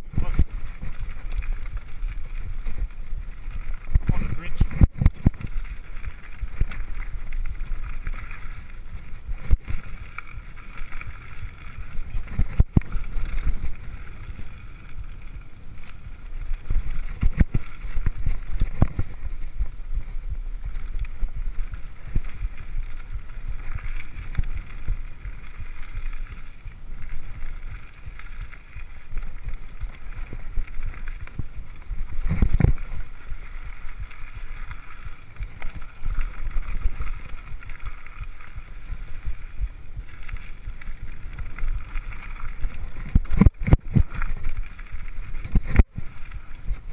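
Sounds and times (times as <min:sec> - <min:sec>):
bike knocking and rattling: 0:00.0 - 0:46.9
bike tyre and drivetrain noise: 0:00.0 - 0:46.9
wind rumble on microphone: 0:00.0 - 0:46.9.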